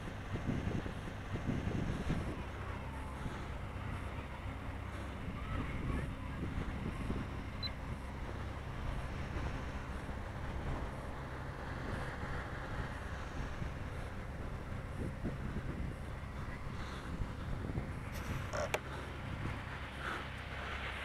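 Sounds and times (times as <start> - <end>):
wind blowing across microphone: 0.0 - 21.0.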